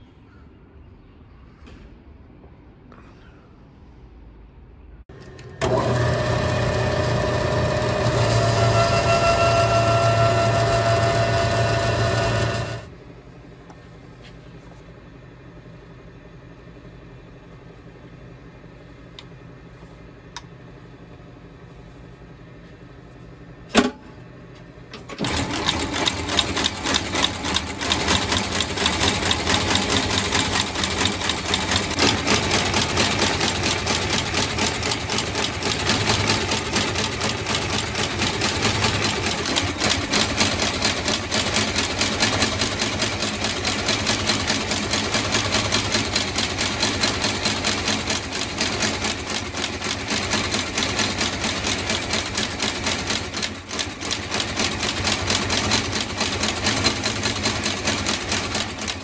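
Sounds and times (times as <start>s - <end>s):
stitching machine running: 5.1s - 12.9s, 24.9s - 59.0s.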